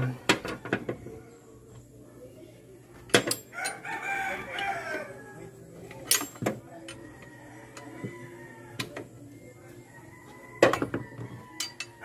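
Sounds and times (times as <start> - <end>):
faint background music: 0.0 - 12.0
metal tools clinking: 6.0 - 7.0, 11.6 - 12.0.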